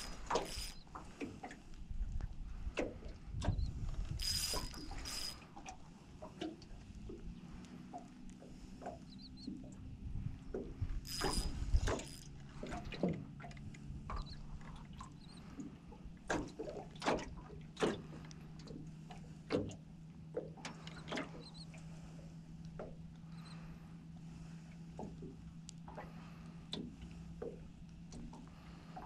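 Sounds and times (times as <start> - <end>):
water slapping boat hull: 0.0 - 1.9, 2.5 - 22.1
steady low hum: 0.0 - 16.3.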